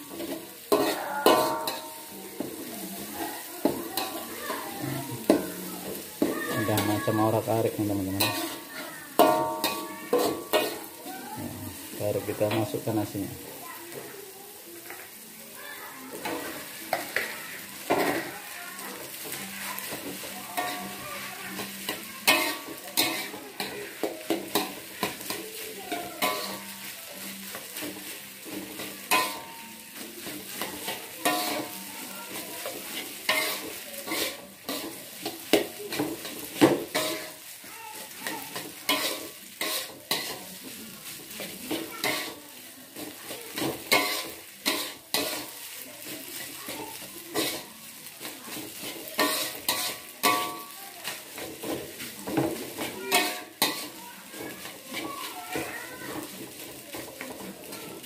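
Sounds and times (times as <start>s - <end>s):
oil sizzling: 0.0s - 58.0s
metal spatula clacking on wok: 0.2s - 2.1s, 8.2s - 10.9s, 19.2s - 25.4s, 26.0s - 26.7s, 27.6s - 29.6s, 30.2s - 37.4s, 38.3s - 40.4s, 43.0s - 46.5s, 47.3s - 55.0s.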